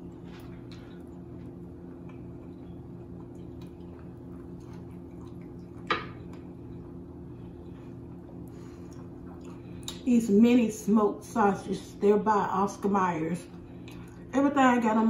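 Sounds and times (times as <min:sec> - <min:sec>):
steady low hum: 0:00.0 - 0:15.0
small drips and clicks: 0:02.0 - 0:06.5.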